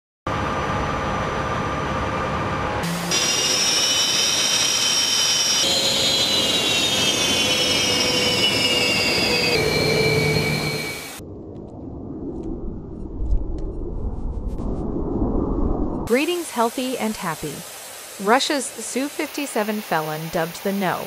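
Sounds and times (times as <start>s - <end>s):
jet afterburner roar: 0.3s - 11.3s
high turbine whine: 0.3s - 21.0s.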